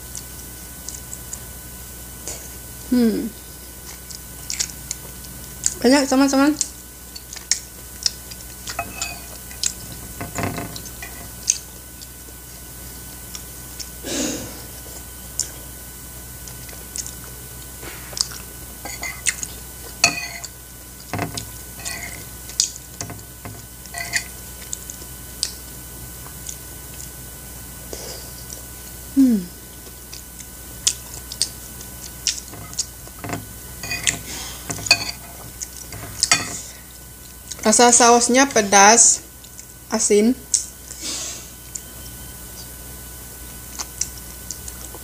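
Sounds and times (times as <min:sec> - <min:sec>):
chewing with wet smacks: 0:00.0 - 0:01.5, 0:03.8 - 0:05.8, 0:06.5 - 0:10.1, 0:10.7 - 0:14.0, 0:14.8 - 0:23.4, 0:24.2 - 0:27.2, 0:29.6 - 0:33.2, 0:35.2 - 0:36.3, 0:39.3 - 0:39.8, 0:43.4 - 0:45.0
spoon clinking on ceramic plate: 0:08.8 - 0:09.3, 0:20.0 - 0:20.5, 0:21.2 - 0:22.2, 0:23.9 - 0:24.3, 0:32.6 - 0:35.3, 0:36.0 - 0:36.6.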